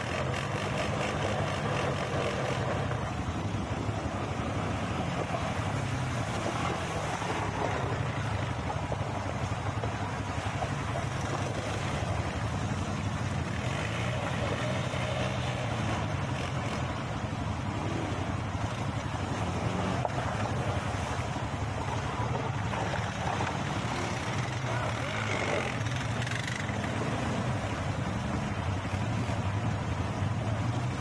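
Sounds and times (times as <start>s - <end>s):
quad bike engines revving: 0.0s - 31.0s
water splashing from wheels: 0.0s - 31.0s.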